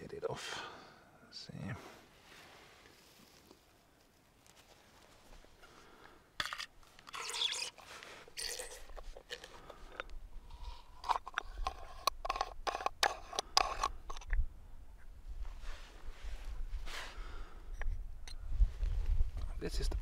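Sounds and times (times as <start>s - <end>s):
flashlight threads scraping and clicking: 8.9s - 14.4s, 17.7s - 18.4s.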